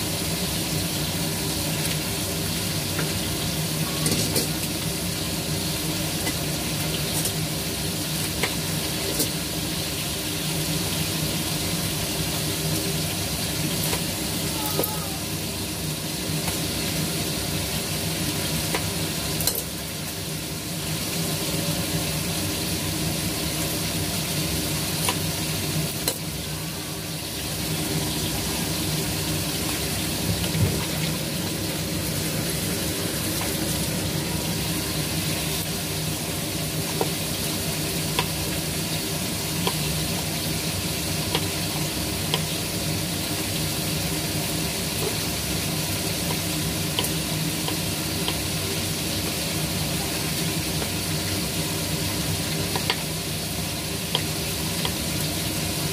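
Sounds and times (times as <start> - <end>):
food sizzling in a pan: 0.0 - 55.9.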